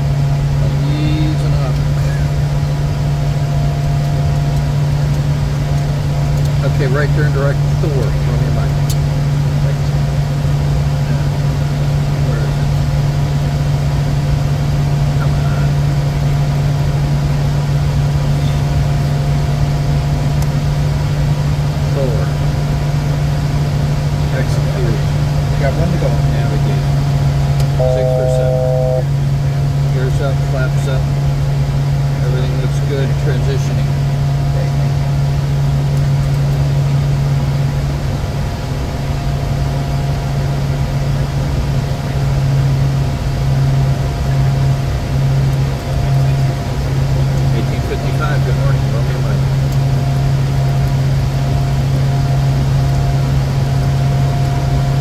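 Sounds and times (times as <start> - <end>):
air and jet engine noise: 0.0 - 55.0
low cockpit hum: 0.0 - 55.0
faint high steady tone: 27.7 - 29.2.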